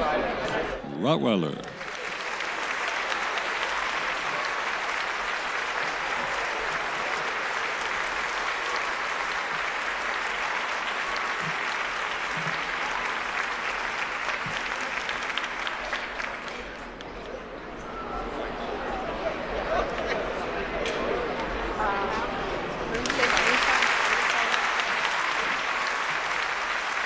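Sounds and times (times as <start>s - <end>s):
audience applauding: 1.0s - 17.0s, 22.9s - 27.0s.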